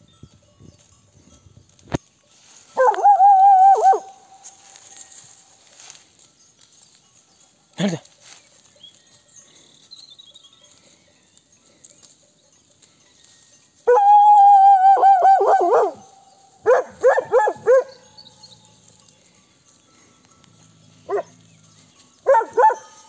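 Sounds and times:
dog howling: 2.8s - 4.2s, 13.9s - 18.0s, 22.3s - 22.9s
dog yelping barks: 2.8s - 4.4s, 13.9s - 18.0s, 21.1s - 21.4s, 22.2s - 23.0s.

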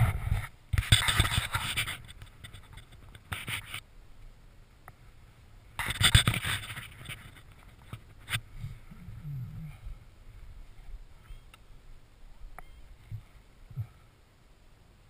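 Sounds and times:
scraping and rustling at microphone: 0.0s - 3.9s, 5.8s - 11.6s, 12.5s - 14.1s.

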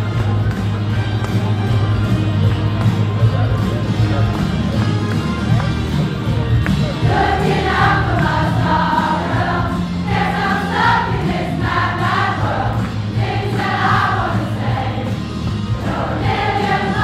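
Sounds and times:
large choir singing: 7.0s - 17.0s.

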